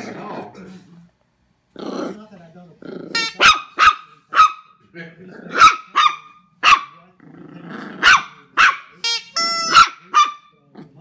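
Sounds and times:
puppy growling: 0:00.0 - 0:00.8, 0:01.7 - 0:03.4, 0:05.0 - 0:05.9, 0:07.0 - 0:08.6, 0:10.6 - 0:11.0
puppy barking in high yaps: 0:03.2 - 0:04.8, 0:05.6 - 0:07.0, 0:08.0 - 0:09.0, 0:09.7 - 0:10.5.

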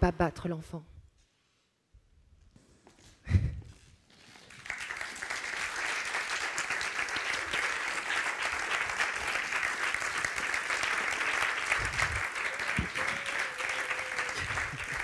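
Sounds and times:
audience applause: 0:04.4 - 0:15.0.

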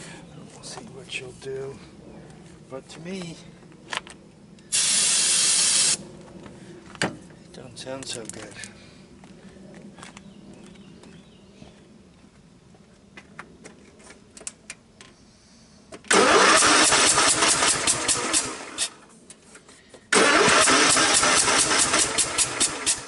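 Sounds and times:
engine cranking with starter: 0:16.1 - 0:19.0, 0:20.1 - 0:23.0.

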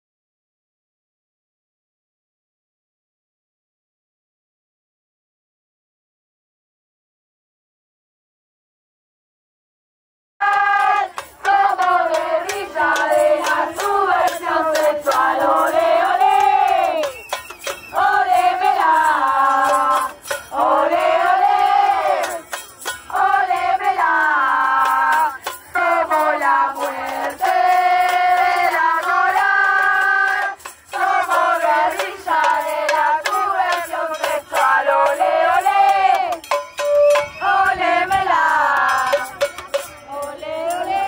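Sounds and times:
women chanting in unison: 0:10.4 - 0:17.2, 0:17.9 - 0:22.5, 0:23.1 - 0:36.4, 0:37.4 - 0:39.3, 0:40.1 - 0:41.0.

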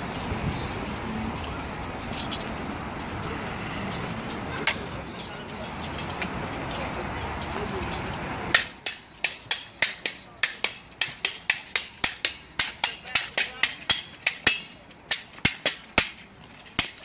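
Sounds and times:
weapons clashing: 0:08.5 - 0:17.0.

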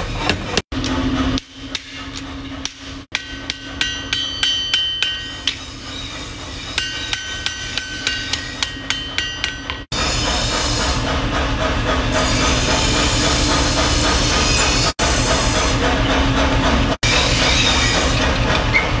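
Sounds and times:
hammer ringing on hot metal: 0:00.8 - 0:05.9, 0:06.6 - 0:09.9.

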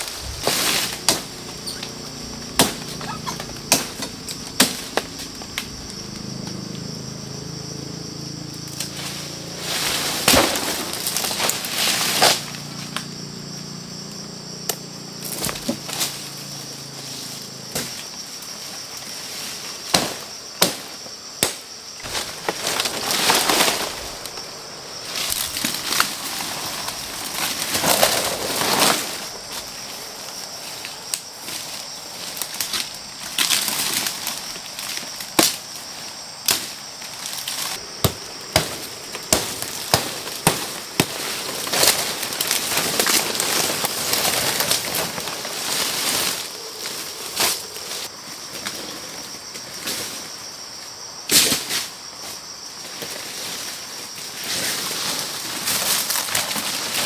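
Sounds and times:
sharp knocks and cracks: 0:00.4 - 0:01.9, 0:02.5 - 0:05.7, 0:19.9 - 0:24.4, 0:32.6 - 0:35.6, 0:36.4 - 0:44.2.

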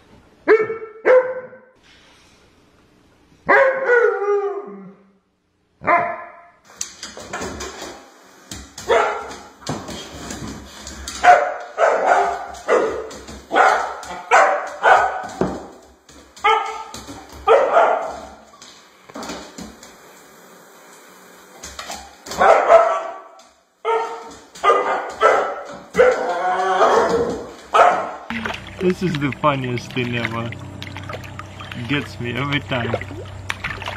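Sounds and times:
dog barking: 0:00.5 - 0:01.7, 0:03.4 - 0:04.2, 0:05.8 - 0:06.6, 0:08.9 - 0:09.3, 0:11.2 - 0:15.4, 0:16.4 - 0:18.4, 0:22.4 - 0:28.3.

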